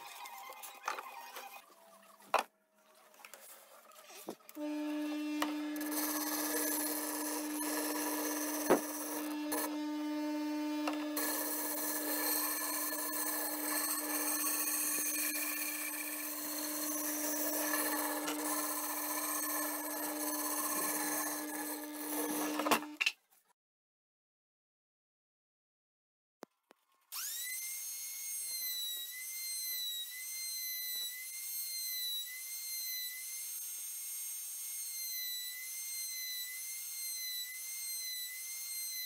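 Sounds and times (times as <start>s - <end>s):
wood grinding against sanding disc: 4.6s - 9.8s, 10.8s - 23.0s
disc sander motor hum: 4.6s - 23.0s.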